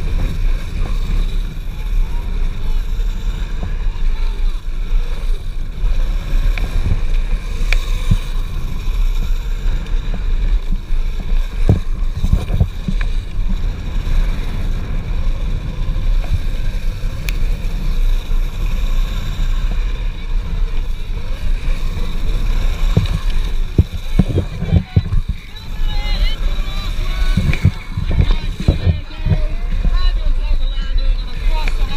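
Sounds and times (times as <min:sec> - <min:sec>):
wheels rumbling on gravel: 0:00.0 - 0:31.9
wind noise on microphone: 0:00.0 - 0:31.9.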